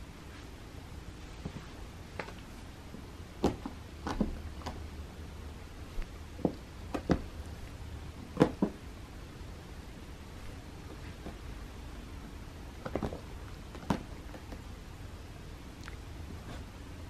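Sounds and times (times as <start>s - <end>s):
taps on carpeted scratching ramp: 6.4s - 7.4s.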